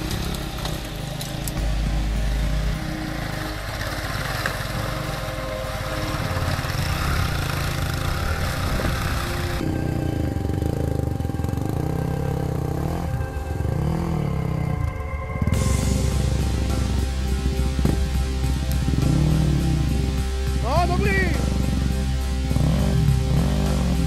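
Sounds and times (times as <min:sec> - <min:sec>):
motorcycle engine in water: 0:00.0 - 0:12.1
motorcycle engines revving: 0:00.0 - 0:24.0.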